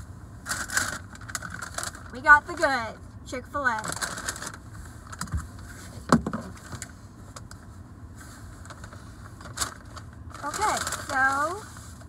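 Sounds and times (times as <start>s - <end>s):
paper bag rustling and crinkling: 0.5s - 2.6s, 3.8s - 6.9s, 8.6s - 12.0s.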